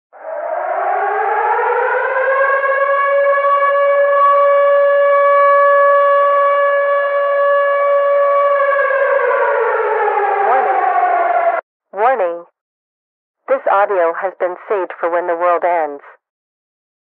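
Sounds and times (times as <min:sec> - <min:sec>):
civil defense siren wailing: 0:00.2 - 0:11.6.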